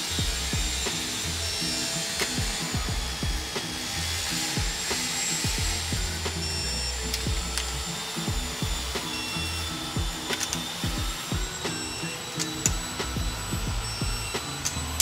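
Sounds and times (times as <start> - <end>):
bass-heavy background music: 0.0 - 15.0
torque wrench clicks: 6.2 - 13.2, 14.2 - 15.0.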